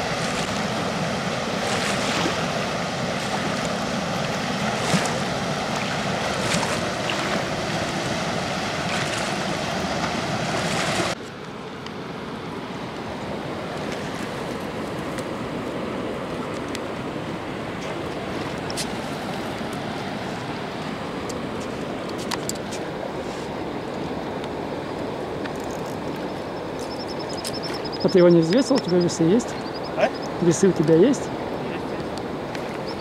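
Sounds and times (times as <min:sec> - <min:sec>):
water rushing through dam: 0:00.0 - 0:25.4.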